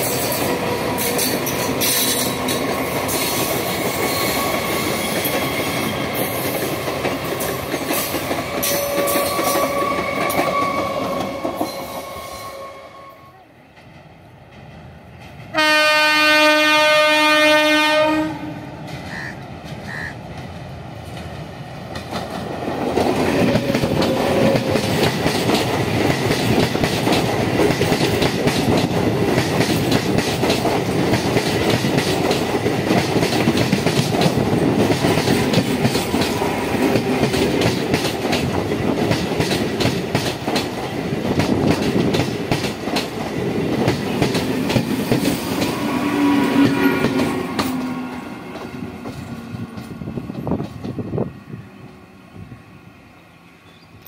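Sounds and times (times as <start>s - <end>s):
rumble of train coaches: 0.0s - 54.0s
train horn blast: 8.6s - 13.5s, 15.5s - 19.3s.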